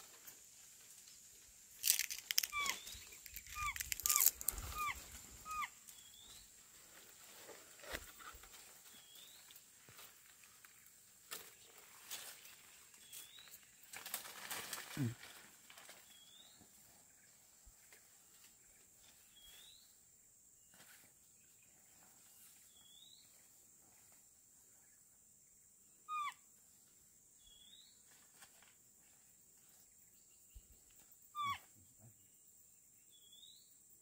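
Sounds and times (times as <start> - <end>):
short falling animal calls: 1.9 - 5.7
short rising animal chirp: 2.4 - 5.7.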